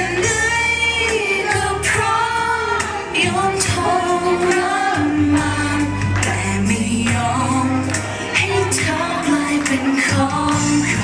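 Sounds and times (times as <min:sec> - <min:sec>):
backing track: 0:00.0 - 0:11.0
people singing pop ballad: 0:00.0 - 0:11.0.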